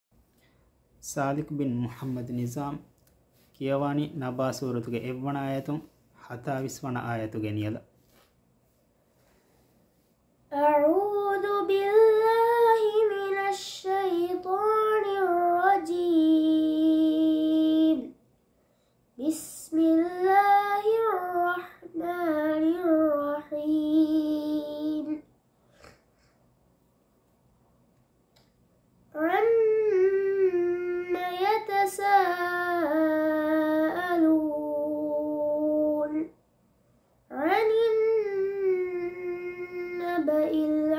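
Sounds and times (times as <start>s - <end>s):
boy chanting melodic recitation: 1.0s - 2.9s, 10.5s - 18.1s, 19.2s - 25.2s, 29.1s - 36.3s, 37.3s - 40.9s
boy breathing: 8.0s - 10.3s, 18.5s - 19.2s, 25.6s - 26.5s.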